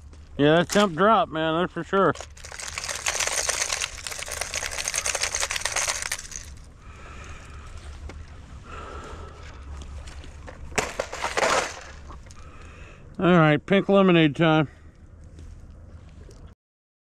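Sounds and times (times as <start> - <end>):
plastic lures rattling in tackle box: 2.1 - 6.7.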